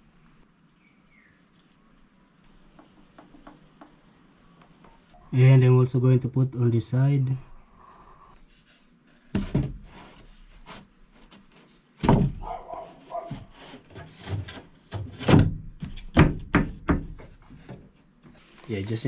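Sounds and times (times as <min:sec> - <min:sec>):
wooden floor panel thumps: 0:12.0 - 0:12.5, 0:15.2 - 0:17.4.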